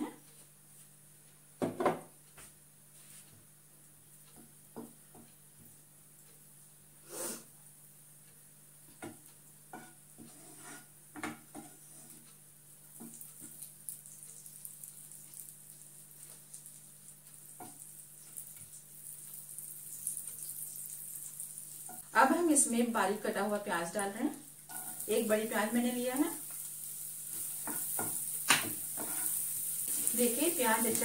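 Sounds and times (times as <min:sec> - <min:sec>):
spatula scraping pan: 0:09.7 - 0:12.2, 0:26.5 - 0:31.0
butter sizzling: 0:12.7 - 0:31.0.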